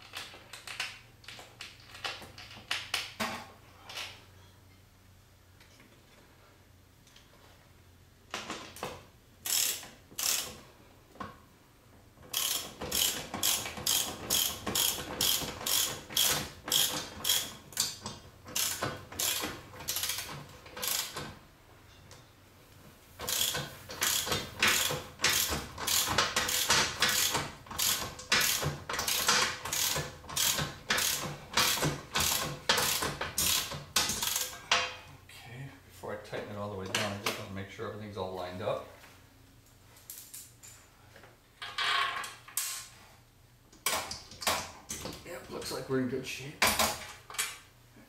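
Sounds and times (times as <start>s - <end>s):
socket wrench ratcheting: 9.4s - 10.6s, 12.3s - 21.2s, 23.2s - 34.6s.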